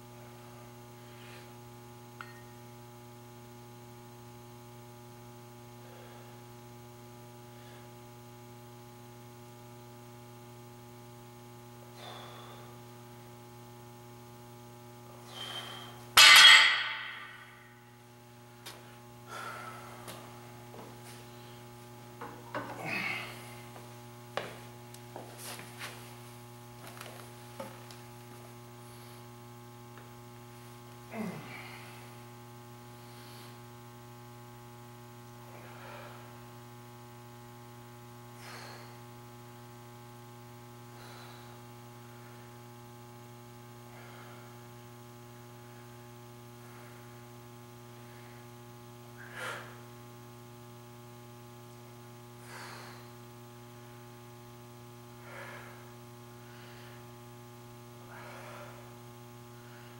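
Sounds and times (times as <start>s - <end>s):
electrical mains hum: 0.0s - 59.9s
man breathing sharply: 12.0s - 12.8s, 15.2s - 16.1s, 19.2s - 20.2s, 38.4s - 39.0s, 40.9s - 41.7s, 49.2s - 49.8s, 52.4s - 53.2s, 55.2s - 57.1s, 58.1s - 58.9s.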